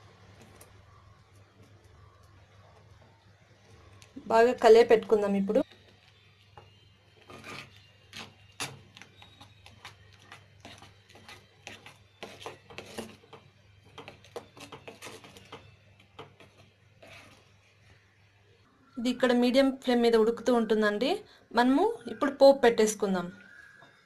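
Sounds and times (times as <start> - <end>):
metal spoon scraping a pan: 6.6 - 17.8.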